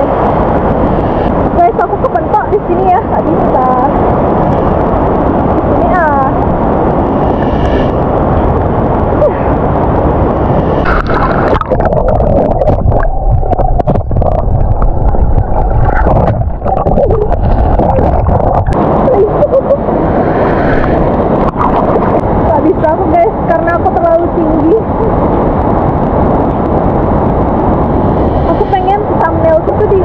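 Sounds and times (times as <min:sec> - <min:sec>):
underwater gurgling and bubbling: 0:04.5 - 0:30.0
water splashing: 0:10.5 - 0:22.9
stream water rushing: 0:10.8 - 0:19.1.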